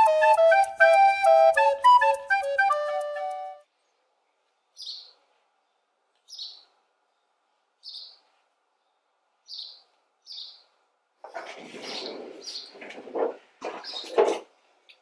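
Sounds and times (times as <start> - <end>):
bird chirping: 0.0 - 10.8, 11.8 - 12.8.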